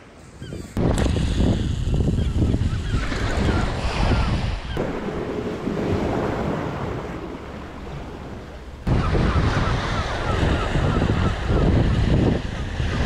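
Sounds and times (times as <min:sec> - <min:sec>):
wind buffeting microphone: 0:00.2 - 0:13.0
waves breaking over rocks: 0:03.1 - 0:13.0.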